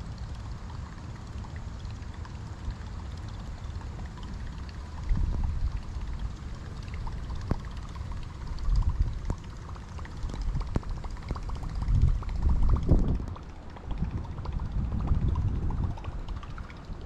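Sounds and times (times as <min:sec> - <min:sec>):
wind rumbling on microphone: 0:03.7 - 0:17.0.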